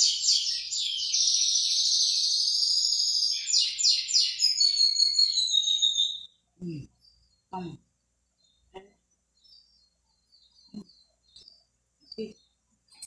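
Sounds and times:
bird shrill high chirps: 0:00.0 - 0:06.5.

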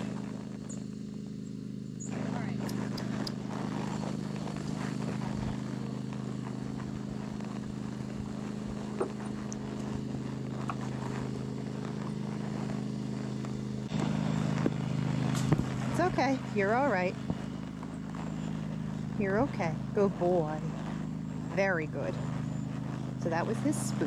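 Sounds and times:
machine engine humming: 0:00.0 - 0:24.0
sharp clicks: 0:02.6 - 0:03.4.

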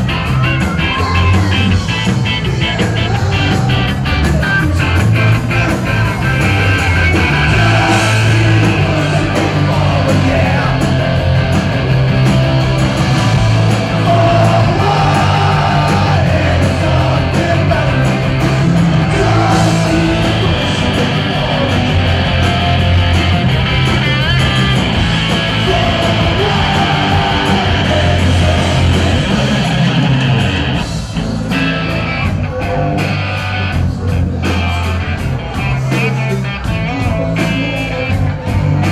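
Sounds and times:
person singing: 0:00.0 - 0:11.4, 0:13.9 - 0:22.7, 0:24.0 - 0:30.3
bass guitar: 0:00.0 - 0:38.9
electric guitar: 0:00.0 - 0:38.9
keyboards: 0:00.0 - 0:38.9.

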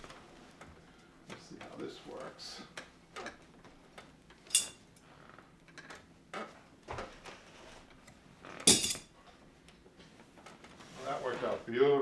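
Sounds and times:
fabric rustling: 0:10.6 - 0:11.8.

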